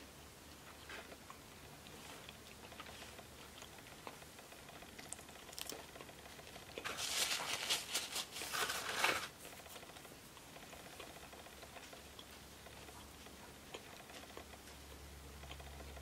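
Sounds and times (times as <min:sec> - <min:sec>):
paper napkin crinkling: 0:06.8 - 0:09.4.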